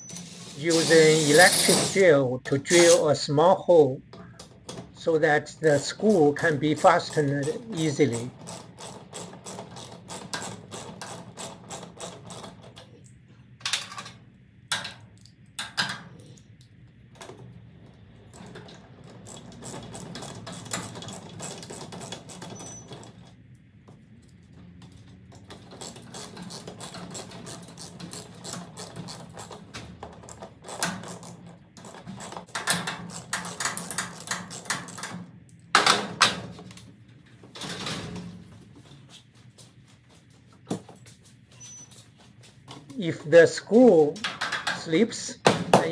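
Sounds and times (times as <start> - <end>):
ratchet wrench clicking: 5.6 - 12.4, 25.7 - 29.6.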